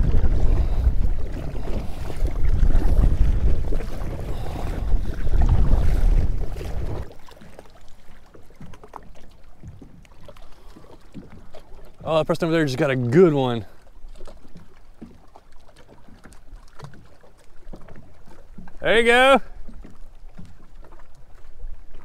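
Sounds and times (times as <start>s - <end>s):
wind buffeting microphone: 0.0s - 7.2s
water splashing against hull: 0.0s - 22.0s.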